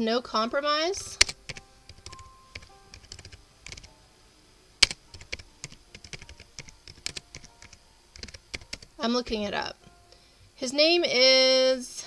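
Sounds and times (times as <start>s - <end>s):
keyboard key clicks: 1.2s - 3.9s.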